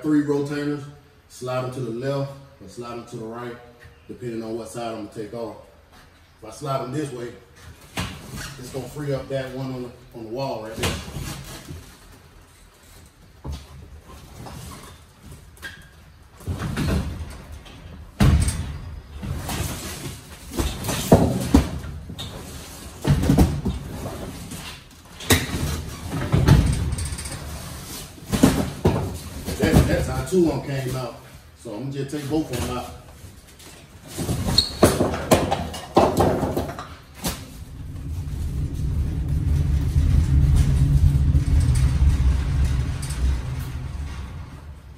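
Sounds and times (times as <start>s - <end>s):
metal cages rattling and rolling: 16.4s - 31.0s, 33.6s - 44.9s
metal roll cages rattling: 34.9s - 44.9s.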